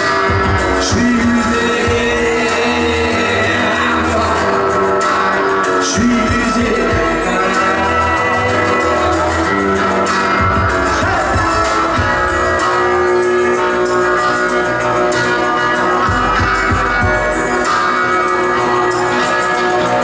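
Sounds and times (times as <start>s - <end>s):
drums: 0.0s - 20.0s
electric guitar: 0.0s - 20.0s
keyboards: 0.0s - 20.0s
live rock band playing: 0.0s - 20.0s.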